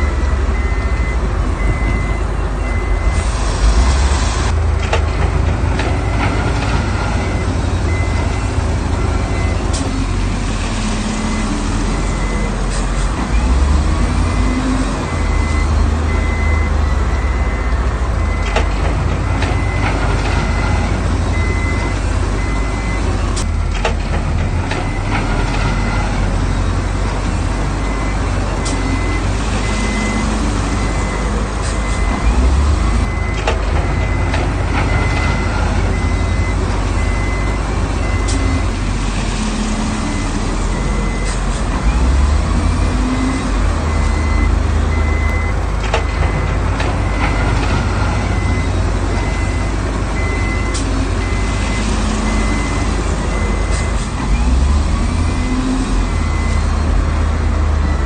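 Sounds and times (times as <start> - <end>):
reversing alarm beeping: 0.0 - 4.6, 6.0 - 10.1, 10.9 - 18.7, 19.5 - 23.5, 24.8 - 38.8, 39.6 - 58.0
diesel engine under load: 0.0 - 58.0
knocks and clanks: 4.6 - 8.4, 18.2 - 22.6, 23.3 - 26.3, 33.1 - 38.8, 41.0 - 52.7.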